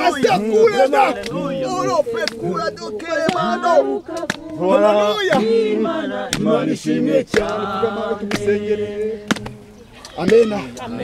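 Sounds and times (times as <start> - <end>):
voices singing together: 0.0 - 11.0
hand claps: 1.2 - 1.4, 2.2 - 2.4, 3.2 - 3.5, 4.1 - 4.6, 5.3 - 5.6, 6.3 - 6.6, 7.3 - 7.6, 8.3 - 8.6, 9.2 - 10.9.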